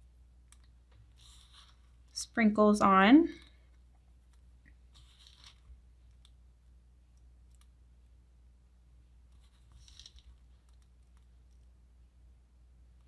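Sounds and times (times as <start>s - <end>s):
low steady hum: 0.0s - 13.0s
patter of sprinkles: 0.4s - 6.4s, 9.3s - 11.8s.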